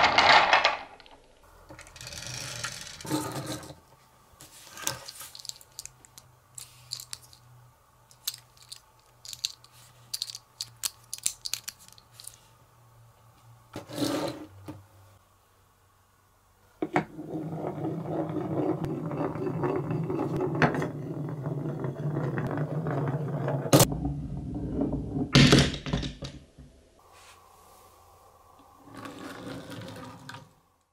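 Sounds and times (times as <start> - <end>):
marble rolling on wooden track: 16.9 - 25.5, 28.8 - 30.6.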